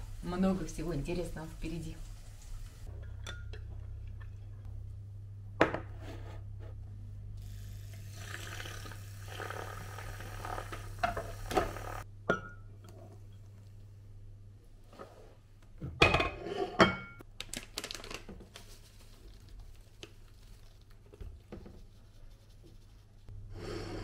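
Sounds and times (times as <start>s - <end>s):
steady low hum: 0.0s - 8.2s.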